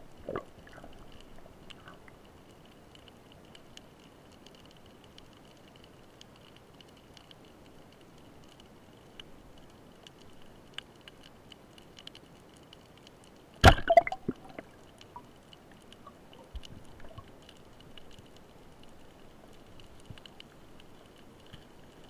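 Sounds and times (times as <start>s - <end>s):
underwater ticking and crackling: 0.0s - 22.0s
speargun crack underwater: 13.6s - 15.0s.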